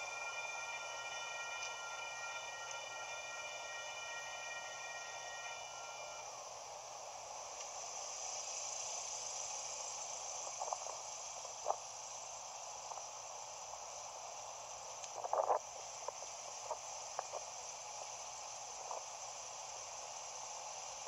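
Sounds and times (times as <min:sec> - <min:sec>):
faint steady hiss: 0:00.0 - 0:21.0.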